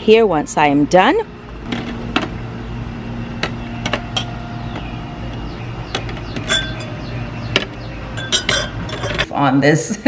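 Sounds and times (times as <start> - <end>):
steady low hum: 0.0 - 10.0
glassware clinking on a table: 8.2 - 9.3.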